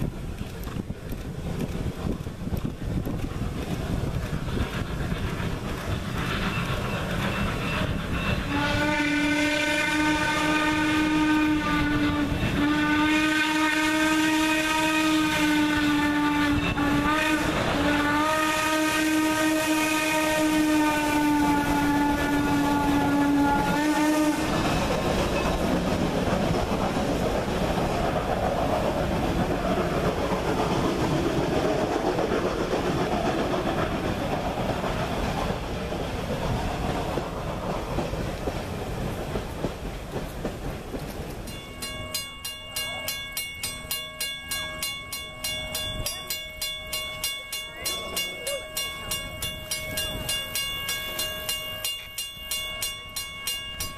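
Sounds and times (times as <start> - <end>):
train coaches rolling on rails: 0.0 - 53.9
steam whistle blasts: 8.2 - 24.8.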